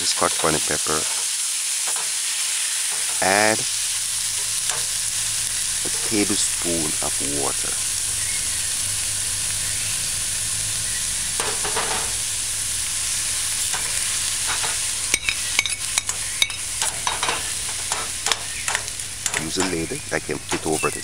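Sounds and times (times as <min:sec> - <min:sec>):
food sizzling in hot oil: 0:00.0 - 0:21.0
metal spoon tapping a pan: 0:11.4 - 0:12.2, 0:13.7 - 0:19.9.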